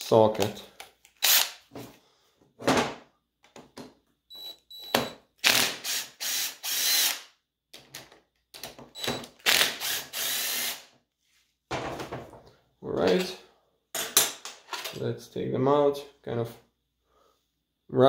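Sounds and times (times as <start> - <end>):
cordless drill bursts: 1.2 - 1.6, 4.3 - 7.3, 9.0 - 10.9.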